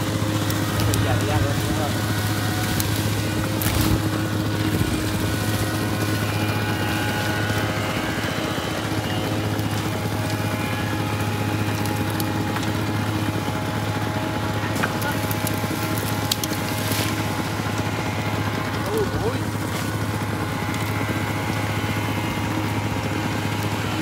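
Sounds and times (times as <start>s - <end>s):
dry crack: 0.0s - 7.4s, 9.5s - 13.5s, 14.6s - 17.9s, 19.6s - 21.7s
water pump engine droning: 0.0s - 24.0s.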